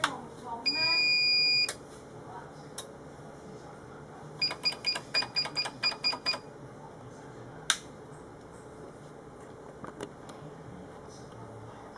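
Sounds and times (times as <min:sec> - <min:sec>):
keypad beeps: 0:00.7 - 0:01.7, 0:04.4 - 0:06.4.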